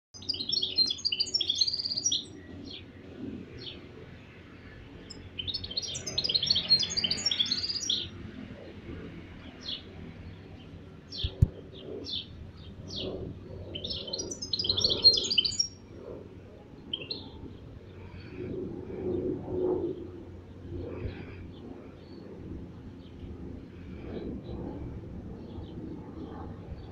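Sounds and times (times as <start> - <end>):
finch twittering song: 0.2 - 3.0, 4.6 - 8.2, 9.4 - 15.9, 16.8 - 18.3.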